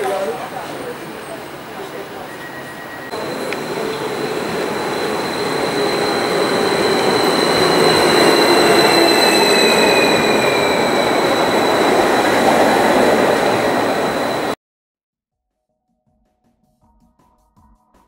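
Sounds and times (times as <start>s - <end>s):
train running noise: 0.0s - 14.6s
high steady squeal: 0.8s - 14.6s.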